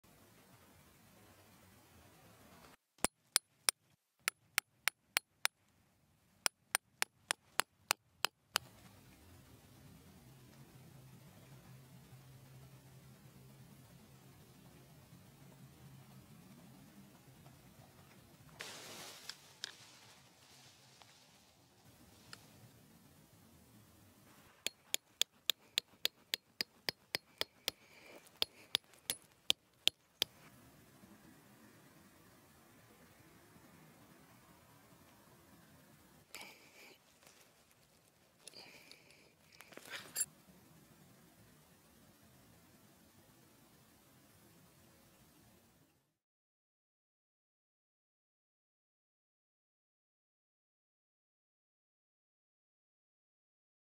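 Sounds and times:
hammer striking tent stake: 0:24.7 - 0:27.8.

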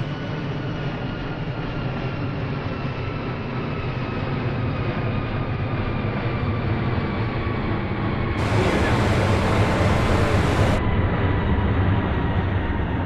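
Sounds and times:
jet airliner drone: 0:08.4 - 0:13.0.

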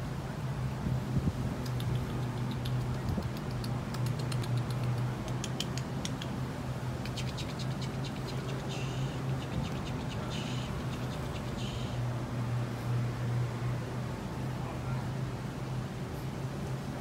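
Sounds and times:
paws clicking and scratching: 0:01.6 - 0:06.4, 0:07.0 - 0:08.7.

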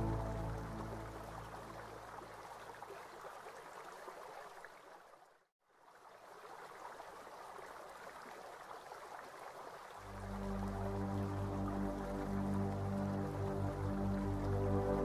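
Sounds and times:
running water splashing: 0:00.0 - 0:15.0.

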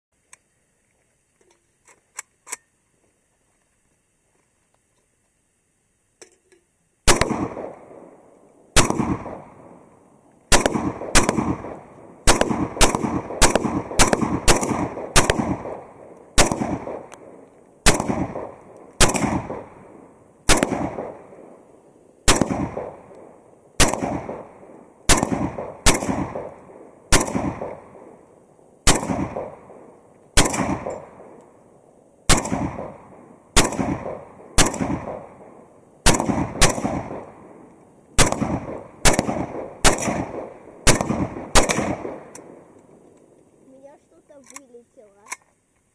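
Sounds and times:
rifle shots echoing: 0:07.0 - 0:31.7, 0:32.3 - 0:43.1.

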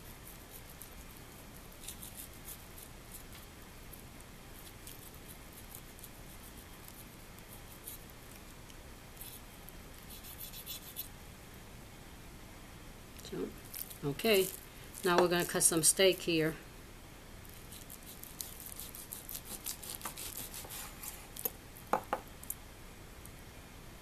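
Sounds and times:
knife scraping on wooden board: 0:18.8 - 0:21.5.

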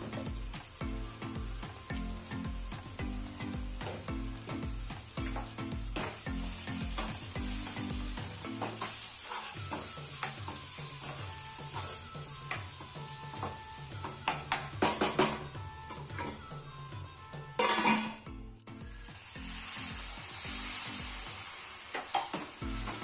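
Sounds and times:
masala sizzling in a frying pan: 0:00.0 - 0:18.2, 0:18.8 - 0:23.0
background music: 0:00.0 - 0:21.8, 0:22.4 - 0:23.0
spatula knocking on pan: 0:02.5 - 0:08.9, 0:13.4 - 0:15.4
metal spatula scraping pan: 0:08.6 - 0:10.4, 0:17.6 - 0:18.2.

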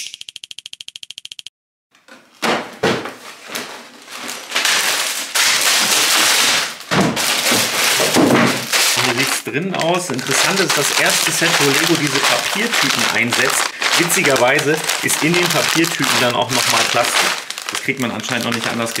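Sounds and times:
rapid clicks: 0:00.0 - 0:01.5
paper and plastic bags rustling: 0:03.1 - 0:19.0
loose plastic bricks rattling: 0:07.3 - 0:19.0.

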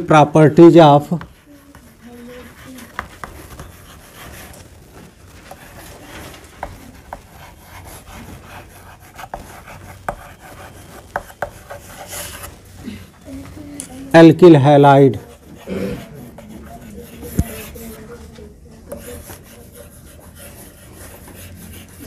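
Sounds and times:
chalk scratching on blackboard: 0:01.0 - 0:12.6, 0:15.0 - 0:18.3, 0:18.9 - 0:22.0
chalk tapping on board: 0:01.1 - 0:04.4, 0:06.6 - 0:12.5, 0:16.3 - 0:18.0.

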